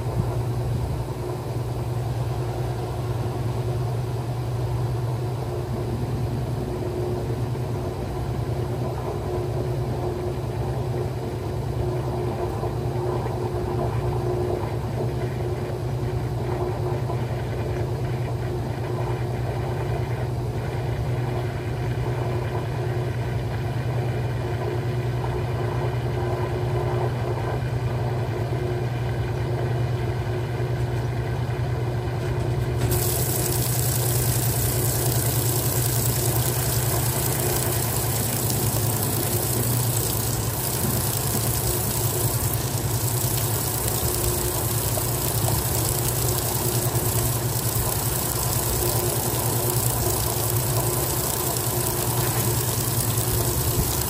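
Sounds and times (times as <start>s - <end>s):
washing machine spinning: 0.0s - 54.0s
steady hiss: 32.8s - 54.0s.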